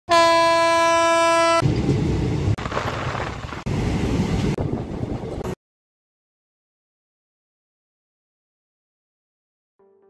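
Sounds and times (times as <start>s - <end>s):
locomotive horn: 0.1s - 1.6s
train rumbling on rails: 1.0s - 5.6s.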